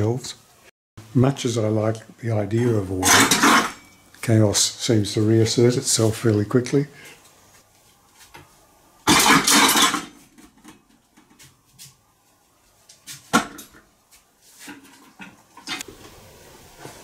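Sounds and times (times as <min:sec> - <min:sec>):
metal pots and pans clattering: 0:03.0 - 0:04.0, 0:09.0 - 0:11.4
sharp metal clank: 0:03.0 - 0:04.1, 0:09.1 - 0:10.2.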